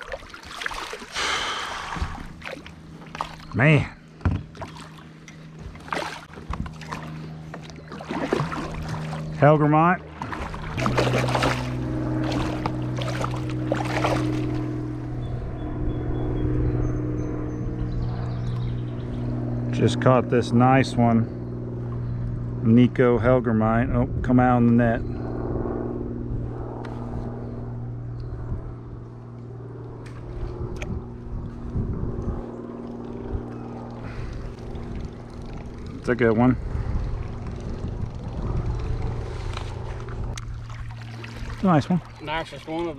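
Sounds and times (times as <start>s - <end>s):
fish splashing in water: 0.0s - 3.5s, 4.5s - 9.4s, 10.0s - 14.8s, 39.2s - 42.9s
steady low hum: 0.0s - 42.9s.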